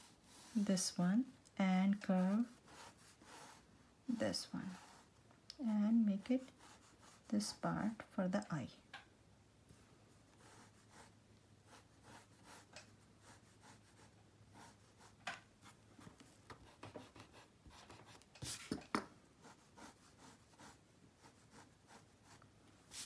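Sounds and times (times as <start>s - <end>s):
pencil scratching on paper: 0.0s - 0.9s, 1.8s - 5.1s, 6.2s - 7.6s, 10.3s - 18.8s, 19.4s - 23.0s.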